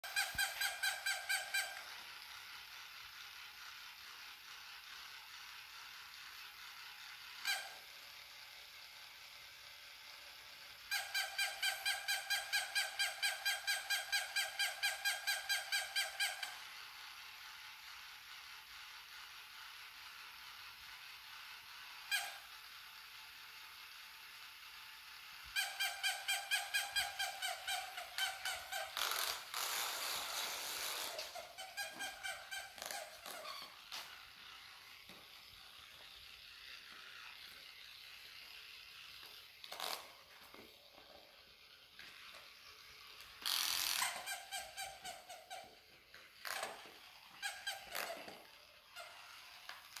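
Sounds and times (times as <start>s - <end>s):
toy dog electronic yipping: 0.0s - 2.2s, 7.2s - 8.0s, 10.8s - 16.8s, 22.0s - 22.6s, 25.4s - 35.0s, 42.0s - 50.0s.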